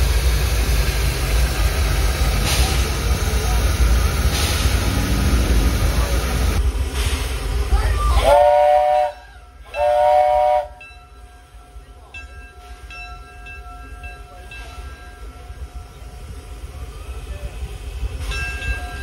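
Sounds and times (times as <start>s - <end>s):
steam hissing from locomotive: 0.0s - 19.0s
train running sounds: 0.0s - 19.0s
steam whistle blasts: 8.2s - 10.8s.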